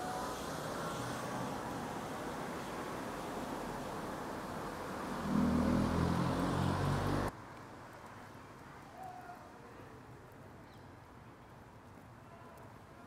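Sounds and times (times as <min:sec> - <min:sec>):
car passing by: 0:00.0 - 0:07.3
quiet street ambience: 0:00.0 - 0:13.0.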